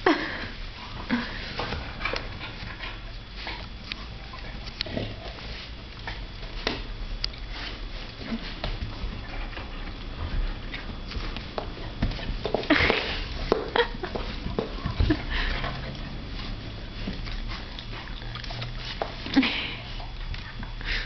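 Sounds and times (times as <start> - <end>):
dogs snuffling: 0.1 - 21.0.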